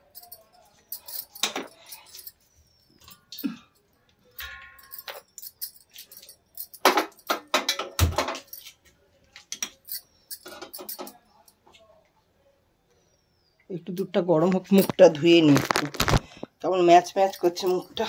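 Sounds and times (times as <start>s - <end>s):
bangles jangling: 0.0s - 8.8s, 9.5s - 11.5s, 16.9s - 18.0s
kitchen things clinking and knocking: 1.0s - 3.6s, 4.4s - 8.8s, 9.4s - 11.2s.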